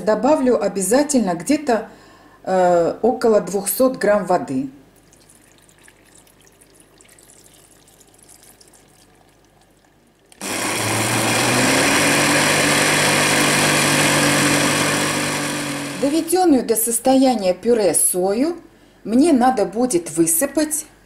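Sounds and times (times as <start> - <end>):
blender motor whirring: 10.4 - 16.4.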